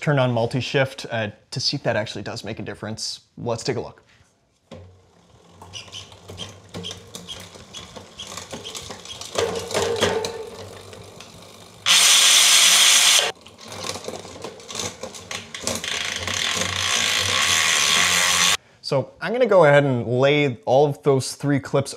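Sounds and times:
bicycle chain clicking over gears: 0:05.0 - 0:18.6.

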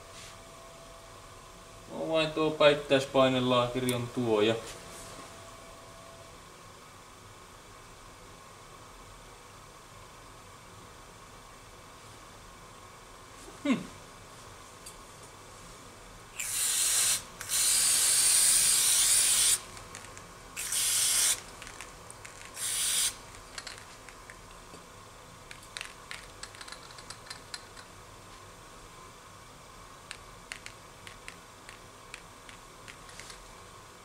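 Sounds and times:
pressurised spray hissing: 0:16.4 - 0:19.6, 0:20.6 - 0:21.4, 0:22.5 - 0:23.2.

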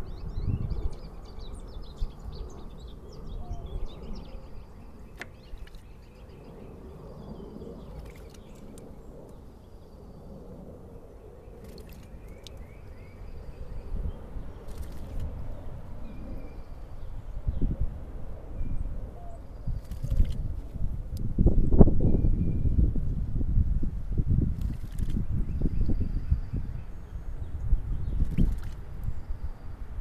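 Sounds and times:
songbirds chirping: 0:00.0 - 0:22.9
bird splashing in water: 0:05.1 - 0:06.1, 0:08.0 - 0:08.8, 0:11.6 - 0:12.6, 0:14.6 - 0:15.3, 0:19.8 - 0:20.5, 0:24.5 - 0:25.2, 0:28.2 - 0:28.9.

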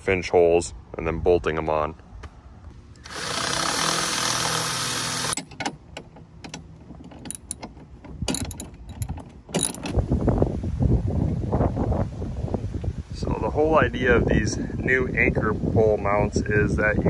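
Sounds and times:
cordless drill boring metal: 0:03.1 - 0:05.4
socket ratchet clicking: 0:07.3 - 0:07.7, 0:08.3 - 0:09.9.

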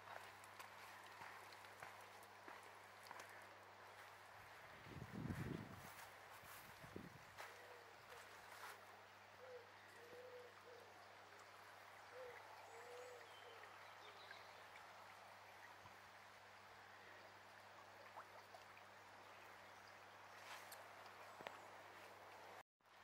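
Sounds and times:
brook water rushing: 0:00.0 - 0:04.9, 0:10.7 - 0:23.0
bird hooting coos: 0:09.4 - 0:11.0, 0:12.1 - 0:13.7.

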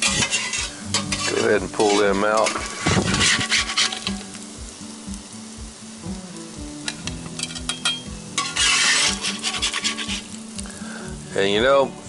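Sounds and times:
spatula scraping cast iron skillet: 0:00.0 - 0:04.8, 0:06.8 - 0:10.8
food sizzling: 0:00.0 - 0:12.0.

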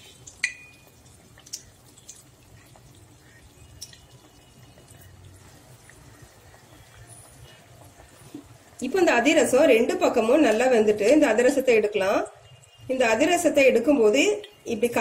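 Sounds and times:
hot oil bubbling and crackling: 0:00.0 - 0:15.0
ladle striking metal pan: 0:00.4 - 0:00.8.

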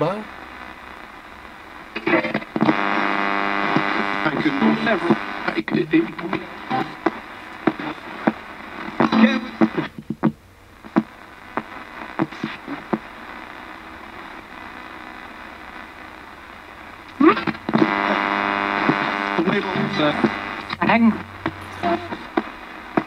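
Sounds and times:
radio static hiss: 0:00.0 - 0:23.0
radio tuning clicks: 0:00.0 - 0:23.0
radio voice fragments: 0:00.0 - 0:23.0
loud pitched radio burst: 0:17.2 - 0:22.9.

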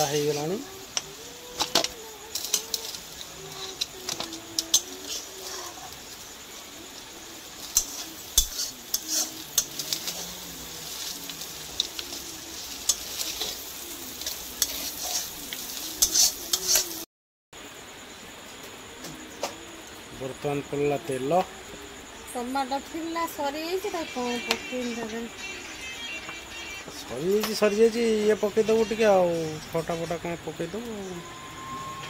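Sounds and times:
seafood sizzling in hot oil: 0:00.0 - 0:17.1, 0:22.5 - 0:31.5
spatula scraping a pan: 0:01.6 - 0:06.1, 0:07.6 - 0:17.0.

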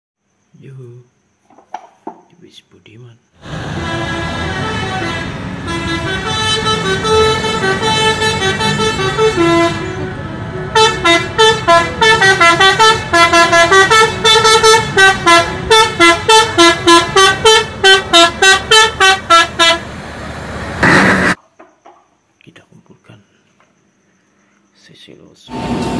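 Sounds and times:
musical air horn playing a tune: 0:03.5 - 0:19.9.

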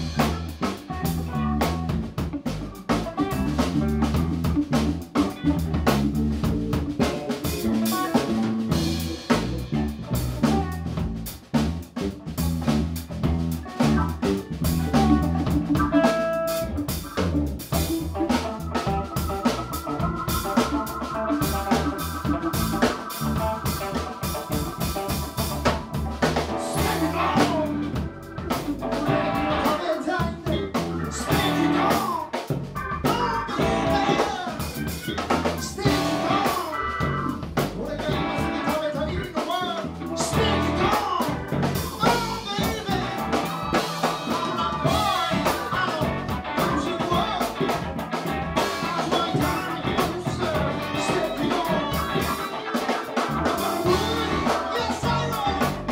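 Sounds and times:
live band playing: 0:00.0 - 0:55.9
man singing: 0:26.4 - 0:28.1, 0:29.0 - 0:55.9.

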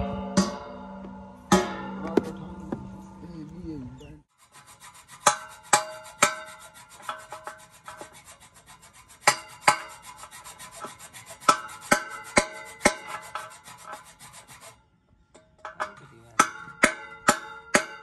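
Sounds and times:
pipe ringing: 0:00.0 - 0:03.4, 0:09.2 - 0:18.0
hacksaw rasping on metal pipe: 0:04.3 - 0:14.8, 0:15.7 - 0:18.0.

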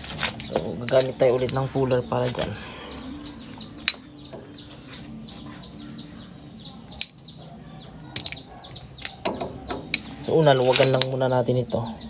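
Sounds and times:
birds chirping: 0:00.0 - 0:12.0
sharp metal clinks: 0:00.7 - 0:02.0, 0:03.8 - 0:04.2, 0:08.1 - 0:11.2.

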